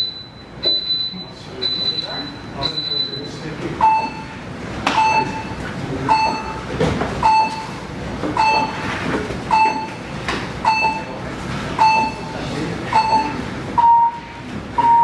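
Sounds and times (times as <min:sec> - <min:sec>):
steady background noise: 0:00.0 - 0:15.0
electronic beeper beeping: 0:12.9 - 0:15.0.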